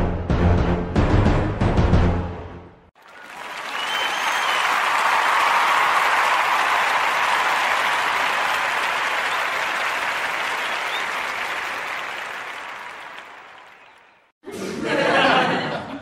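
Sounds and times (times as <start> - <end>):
crowd applause: 3.0 - 14.3.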